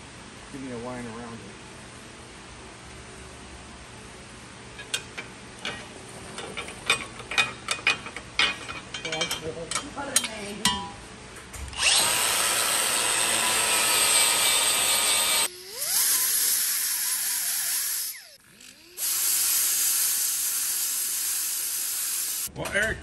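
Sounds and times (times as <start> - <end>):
power grinder grinding steel: 11.8 - 22.5.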